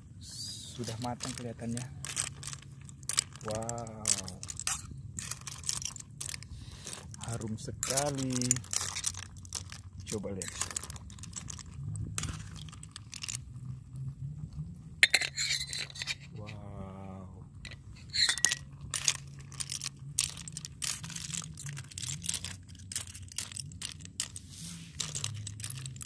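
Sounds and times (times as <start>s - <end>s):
clam shells clinking: 0.8s - 13.5s, 15.0s - 16.4s, 17.6s - 26.0s
metal spatula stirring in pot: 15.0s - 16.3s.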